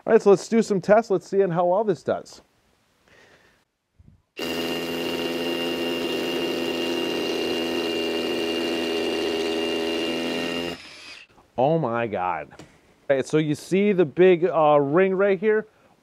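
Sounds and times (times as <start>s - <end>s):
rotary hammer drilling into concrete: 4.4s - 11.3s.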